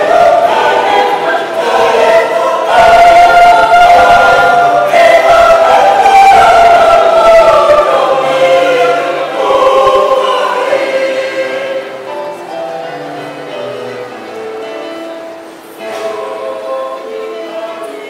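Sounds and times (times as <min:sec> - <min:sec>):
mixed choir singing: 0:00.0 - 0:15.1, 0:15.7 - 0:18.0.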